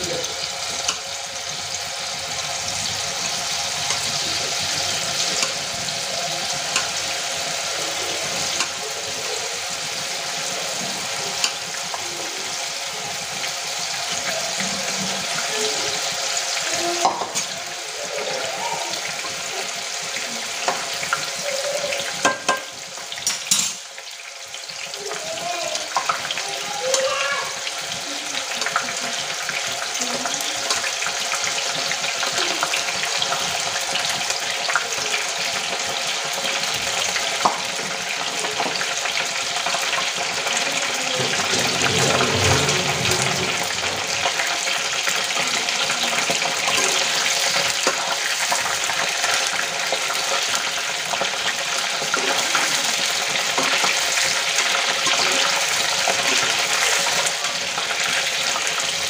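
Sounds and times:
food deep-frying in oil: 0.0 - 59.0
spoon stirring in oil: 46.2 - 58.9.

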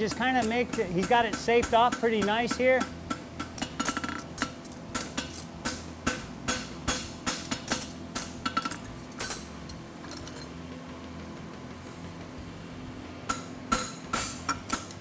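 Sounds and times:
hammer striking hot metal on anvil: 0.0 - 8.8, 13.3 - 15.0.

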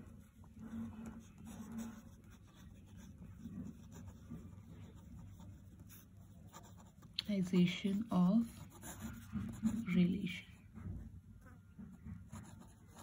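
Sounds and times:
pen scratching on paper: 0.0 - 10.6, 12.0 - 13.0.

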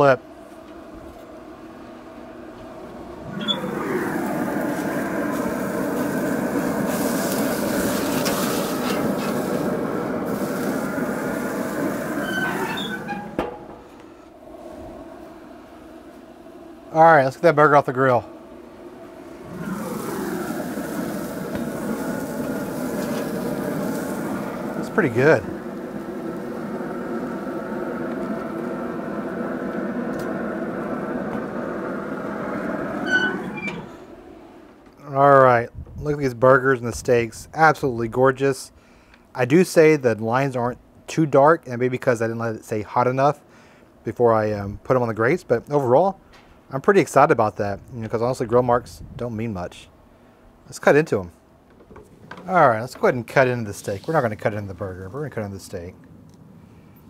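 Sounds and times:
low hum: 0.2 - 35.0
burger patty sizzling on grill: 3.4 - 13.3, 19.3 - 33.6
grill lid clanking shut: 6.0 - 13.9.

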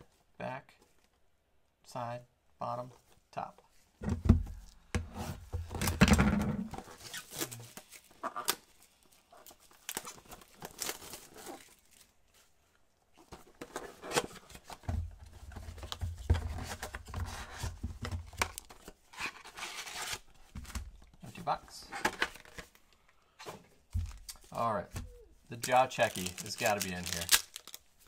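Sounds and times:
gloved hands handling cardboard box: 6.6 - 22.8, 23.4 - 28.0
cardboard tearing: 25.7 - 27.8.

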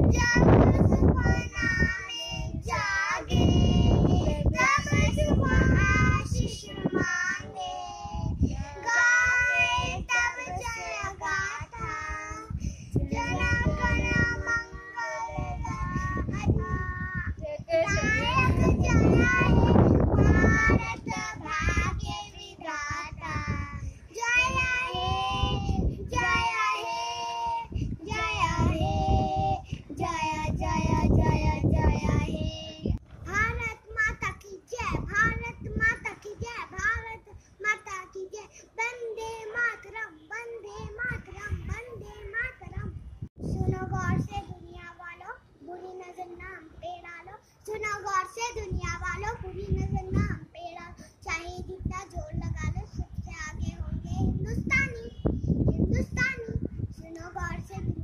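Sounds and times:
girls singing: 0.0 - 33.0.

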